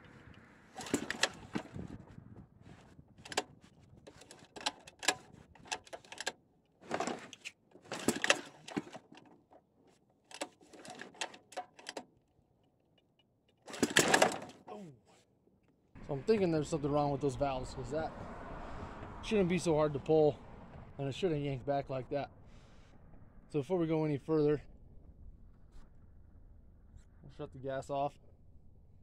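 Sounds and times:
recoil starter pulls: 0.0 - 2.0, 2.7 - 9.6, 10.2 - 12.1, 13.6 - 14.7
engine turning over without firing: 0.0 - 9.3, 13.7 - 14.6.

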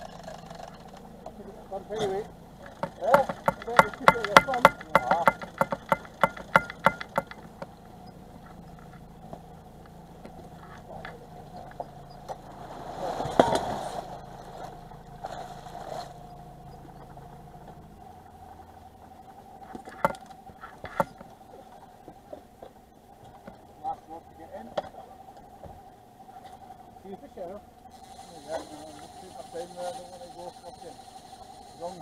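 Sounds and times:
boat engine idling: 0.0 - 32.0
sharp clicks: 2.6 - 7.8.

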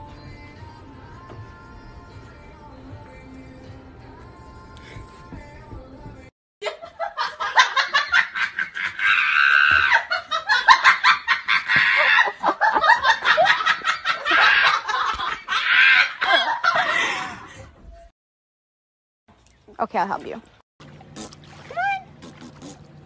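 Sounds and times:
person laughing hard: 6.6 - 17.6.

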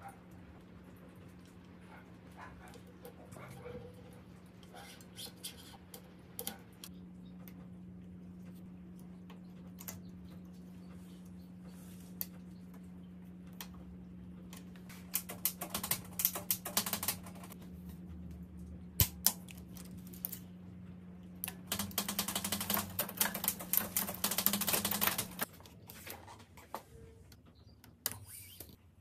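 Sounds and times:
steady low hum: 0.0 - 29.0
rapid mechanical clicking: 14.4 - 17.6, 21.4 - 25.7.

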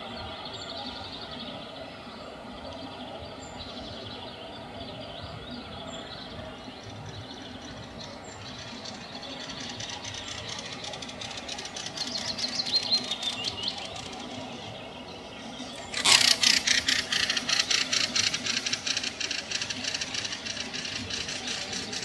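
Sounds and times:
nightingale singing: 7.5 - 14.6.

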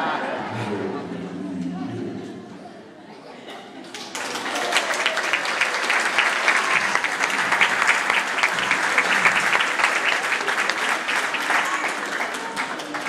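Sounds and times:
audience applause: 3.8 - 13.0.

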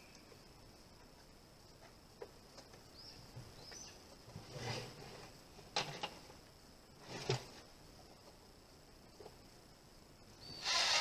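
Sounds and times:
high insect drone: 0.0 - 11.0
bird chirps: 2.9 - 4.0, 10.4 - 10.8.

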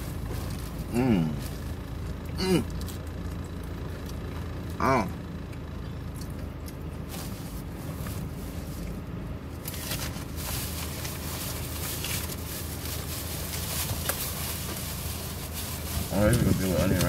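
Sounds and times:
paper bag rustling: 0.0 - 1.7, 9.6 - 17.0
car engine hum: 0.0 - 17.0
chewing: 5.4 - 7.0.

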